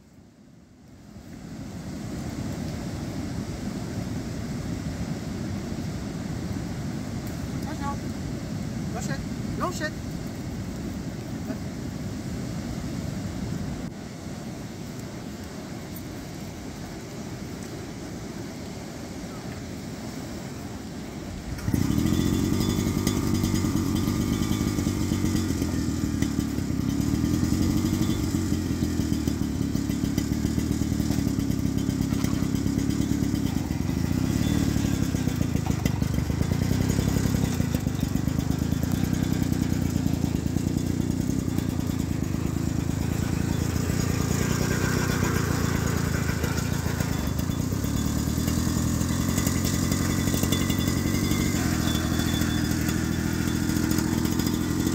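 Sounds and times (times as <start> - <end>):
tiller petrol engine running: 21.4 - 54.9.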